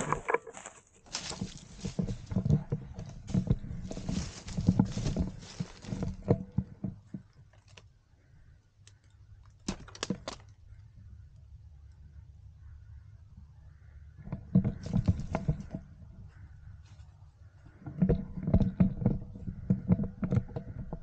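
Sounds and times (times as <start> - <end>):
footsteps in dry leaves: 0.0 - 2.3, 3.2 - 6.2.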